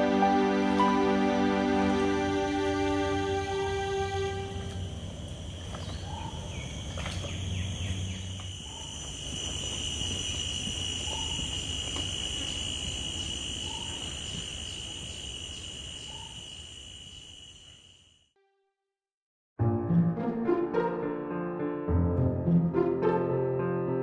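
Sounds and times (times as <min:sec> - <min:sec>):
insects chorus: 0:00.0 - 0:18.3.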